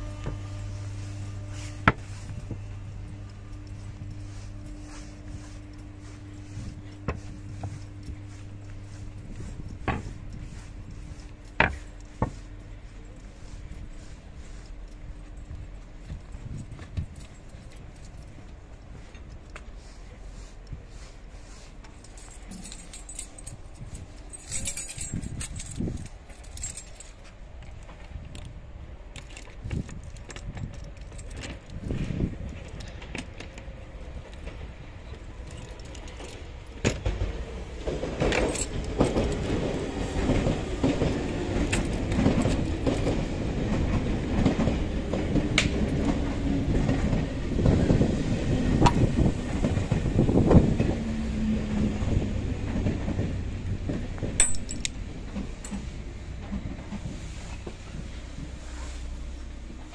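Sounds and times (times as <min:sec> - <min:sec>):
electric train rumbling on track: 0:00.0 - 0:59.9
wheels clicking and knocking: 0:21.8 - 0:58.1.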